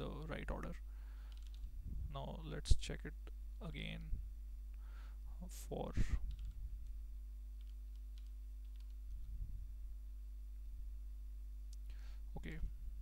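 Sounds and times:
low electrical hum: 0.0 - 13.0
faint keyboard typing: 1.2 - 1.7, 6.2 - 7.0, 7.6 - 9.4.

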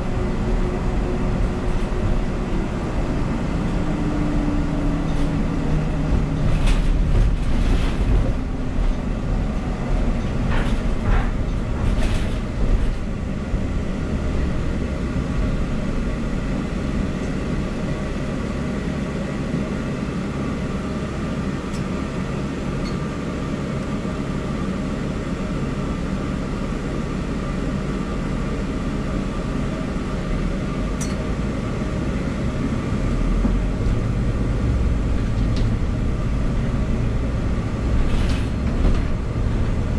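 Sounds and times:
bus engine and road rumble: 0.0 - 39.9
bus fittings rattling: 9.8 - 13.2.

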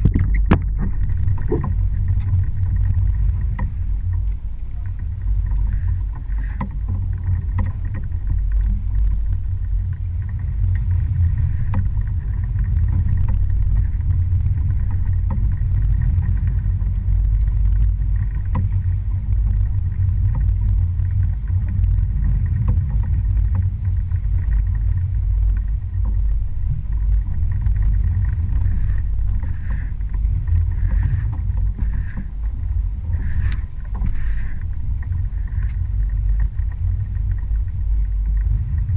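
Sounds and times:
boat motor rumbling: 0.0 - 38.9
hull running through water: 0.0 - 38.9.

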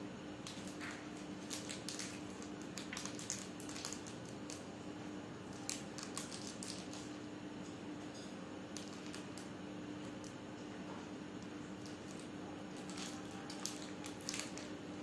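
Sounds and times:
steady low hum: 0.0 - 15.0
wrapper crinkling and tearing: 0.4 - 4.6, 5.5 - 7.2, 8.8 - 9.5, 11.8 - 14.7.

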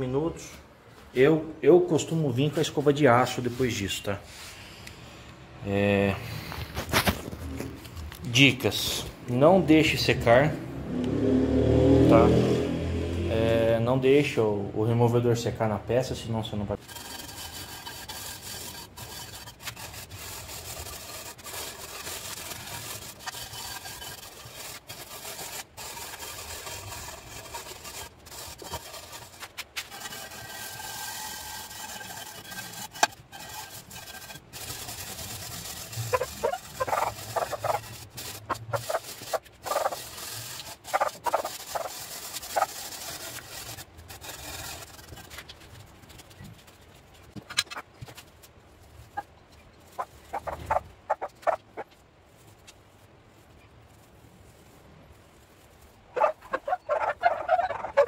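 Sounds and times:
tool scraping paint off steel: 16.8 - 48.4.

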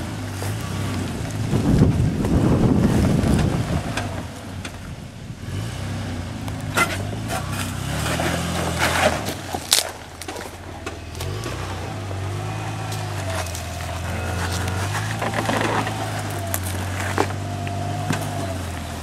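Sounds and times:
car engine running at low revs: 0.0 - 19.0
scrapes and knocks on rock: 6.6 - 11.6, 12.9 - 19.0.

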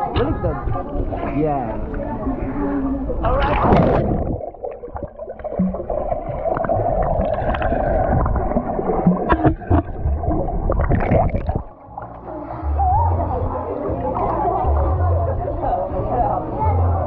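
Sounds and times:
water splashing and gurgling: 1.9 - 12.3.

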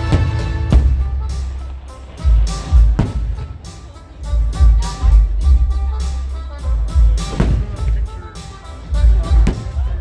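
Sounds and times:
firework booms: 0.0 - 3.6, 7.3 - 8.0, 9.4 - 9.9
loud soundtrack music: 0.0 - 10.0.

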